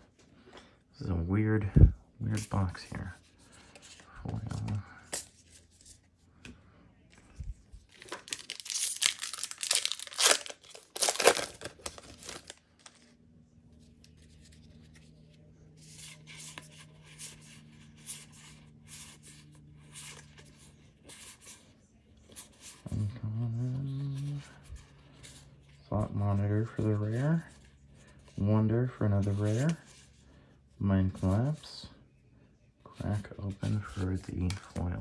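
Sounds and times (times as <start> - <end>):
faint low hum: 0.0 - 35.0
foil wrapper tearing and crinkling: 8.0 - 13.1.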